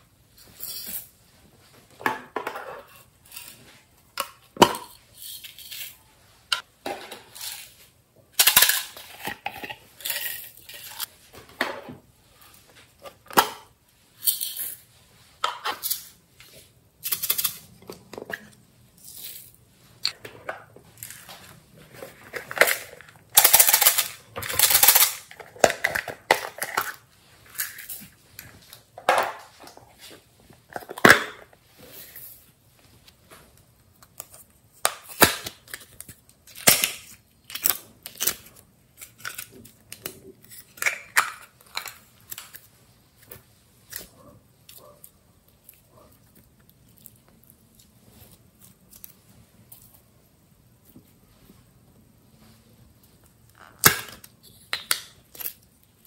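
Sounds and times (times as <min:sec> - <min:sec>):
plastic containers clattering: 0:20.1 - 0:27.1.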